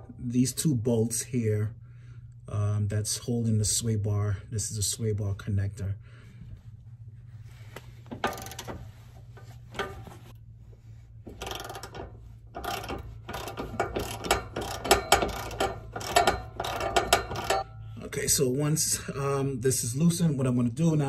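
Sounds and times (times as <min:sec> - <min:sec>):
steady low hum: 0:00.0 - 0:21.0
ratchet wrench clicking: 0:08.1 - 0:08.9, 0:11.3 - 0:17.7.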